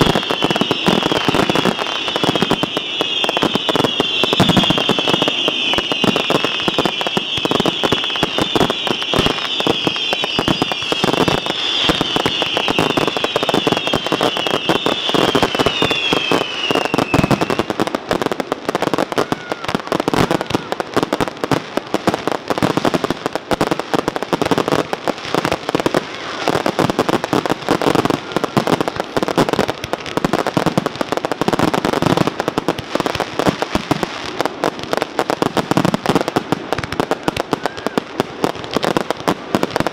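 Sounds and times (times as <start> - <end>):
high falling whistles: 0.0 - 17.7
fireworks bangs and crackling: 0.0 - 39.9.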